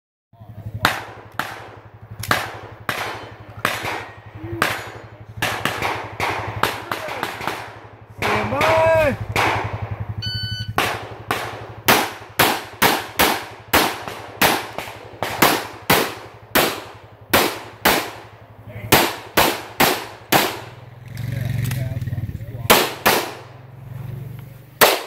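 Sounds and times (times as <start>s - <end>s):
pistol shots: 0.8s - 21.8s, 22.7s - 23.6s, 24.8s - 25.0s
shot timer beep: 10.2s - 10.8s.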